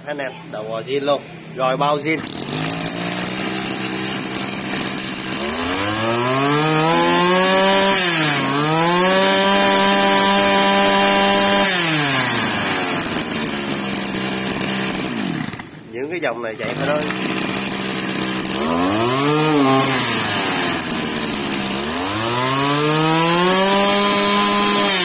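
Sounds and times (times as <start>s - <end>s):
brush cutter engine revving: 0.9s - 25.0s.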